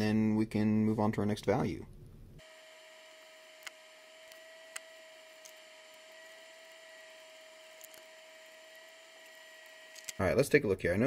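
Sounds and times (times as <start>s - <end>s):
faint electrical whine: 0.0s - 11.0s
soldering iron light ticks: 3.1s - 6.1s.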